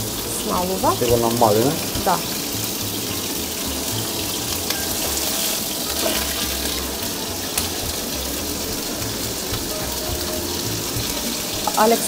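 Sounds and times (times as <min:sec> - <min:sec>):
meat sizzling in a pan: 0:00.0 - 0:12.0.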